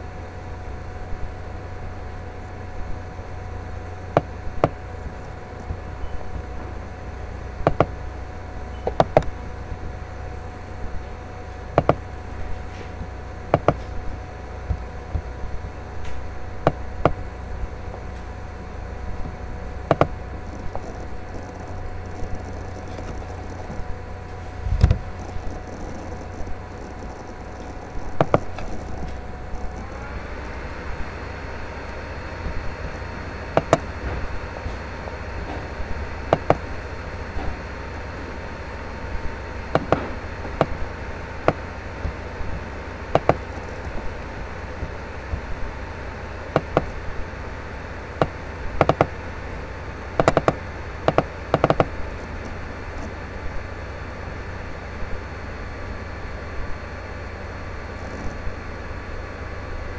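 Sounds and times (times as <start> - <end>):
faint steady tone: 0.0 - 59.9
low hum: 0.0 - 59.9
sharp taps: 7.6 - 8.0, 11.8 - 12.1, 12.7 - 14.0, 19.2 - 23.9, 24.7 - 30.6, 31.8 - 34.8, 36.3 - 36.6, 39.7 - 40.8, 41.5 - 44.1, 48.2 - 49.1, 50.2 - 51.9.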